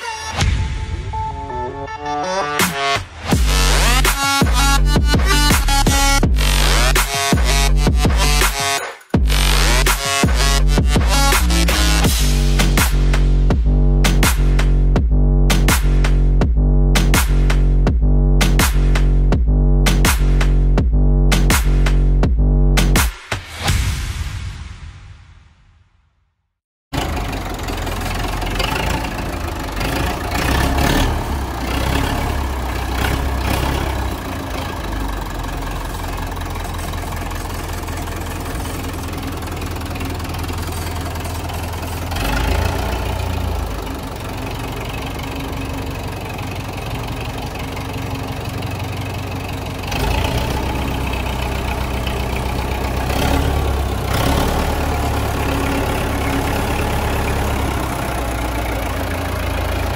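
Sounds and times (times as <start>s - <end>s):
tractor diesel engine idling: 3.2s - 8.4s, 26.9s - 59.9s.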